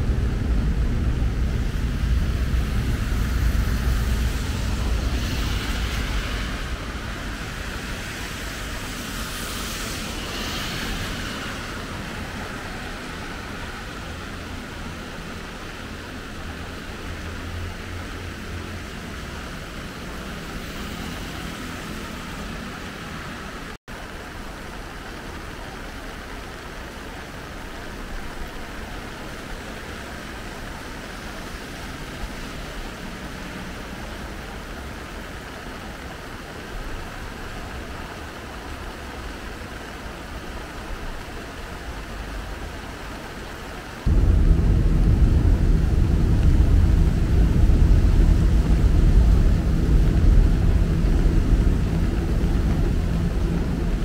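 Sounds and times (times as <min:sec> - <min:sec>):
deep rumble: 0:00.0 - 0:07.8, 0:44.0 - 0:54.0
floodwater rushing in stream: 0:00.0 - 0:54.0.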